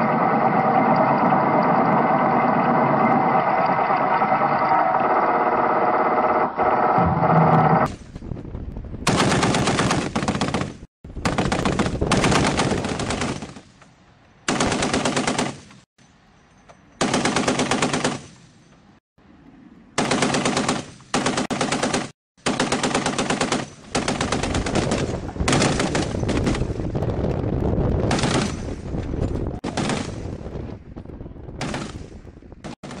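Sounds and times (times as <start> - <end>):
steady drone: 0.0 - 7.9
machine gun bursts: 14.5 - 15.6, 29.6 - 30.2.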